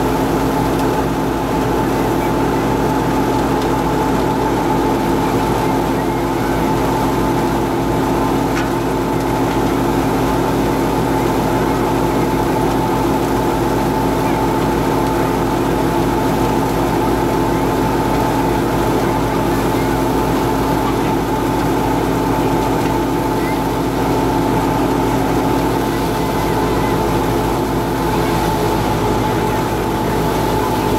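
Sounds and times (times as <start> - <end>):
thresher mechanical drone: 0.0 - 30.9
tractor engine rumble: 0.0 - 30.9.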